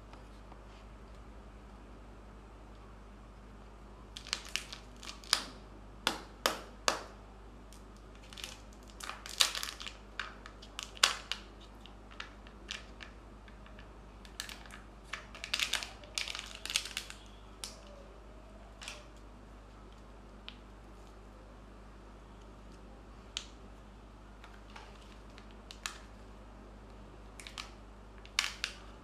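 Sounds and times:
foil seal crinkling: 0:04.2 - 0:05.5, 0:08.2 - 0:13.1, 0:13.7 - 0:17.8.

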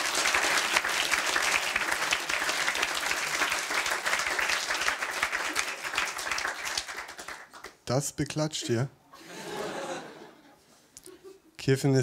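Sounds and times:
large audience applauding: 0:00.0 - 0:07.8.

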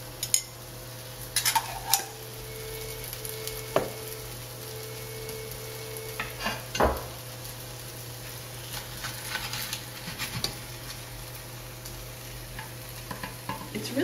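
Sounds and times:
pancakes sizzling in a skillet: 0:00.0 - 0:14.0
spatula scraping and tapping pan: 0:08.7 - 0:10.6.

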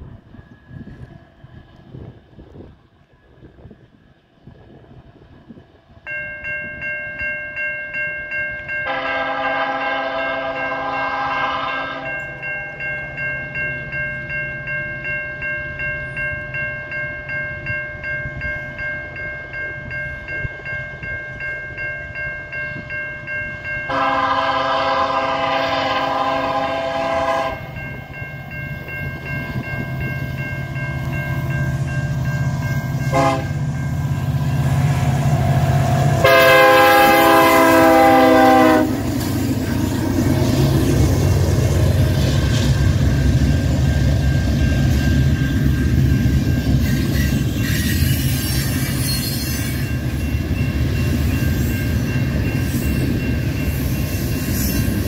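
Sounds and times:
pulsing warning bell ringing: 0:06.1 - 0:55.0
locomotive air horn blasts: 0:08.8 - 0:12.1, 0:23.9 - 0:27.7, 0:33.0 - 0:33.6, 0:36.2 - 0:39.1
locomotive rumble: 0:23.9 - 0:55.0.

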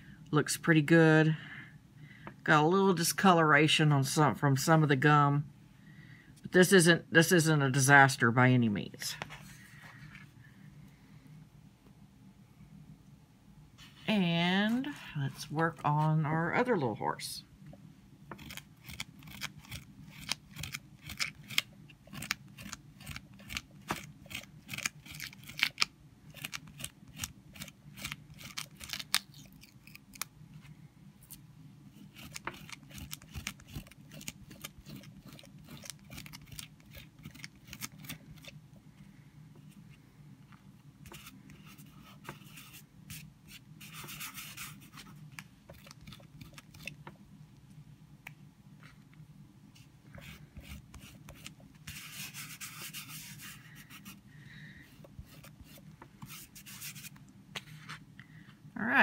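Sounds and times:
rubber pad scraping paper: 0:31.9 - 0:38.6, 0:41.1 - 0:46.9, 0:50.1 - 0:54.2.

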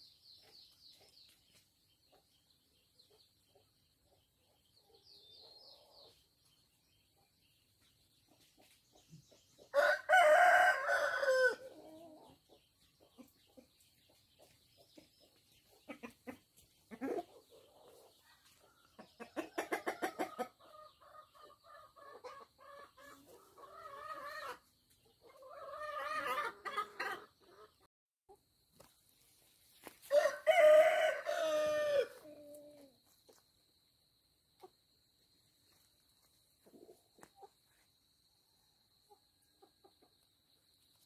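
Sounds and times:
rooster crowing: 0:09.8 - 0:11.7, 0:30.1 - 0:32.2
hens clucking: 0:14.4 - 0:28.4.

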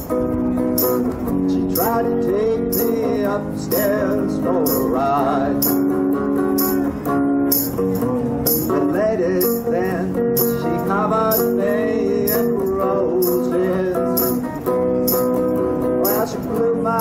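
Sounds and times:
archtop guitar country tune: 0:00.0 - 0:17.0.

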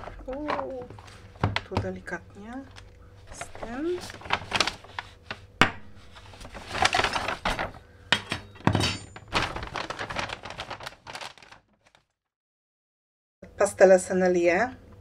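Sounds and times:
foil bag crinkling: 0:00.0 - 0:08.0, 0:08.9 - 0:12.1.

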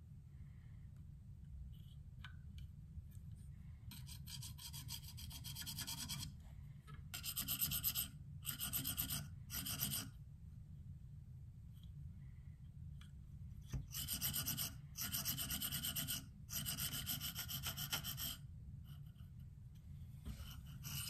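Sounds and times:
sharpening plate rasping on blade: 0:07.2 - 0:10.1, 0:13.9 - 0:18.4.

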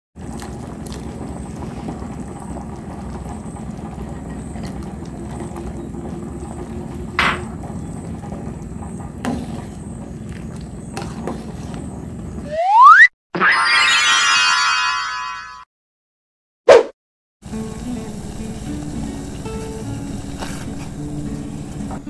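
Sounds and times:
broth bubbling at a boil: 0:00.2 - 0:11.2, 0:17.4 - 0:22.0.

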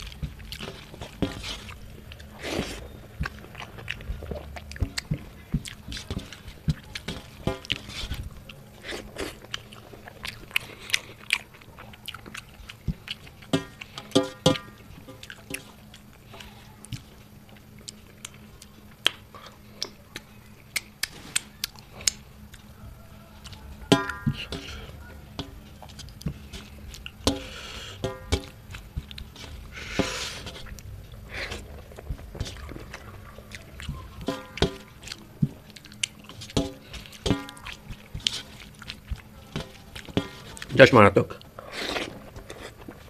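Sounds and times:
wet mouth smacks and chewing: 0:00.0 - 0:14.2, 0:15.1 - 0:22.7, 0:30.4 - 0:40.8
fingers squishing rice on plate: 0:00.0 - 0:43.0
mouth smacking clicks: 0:19.8 - 0:22.7.

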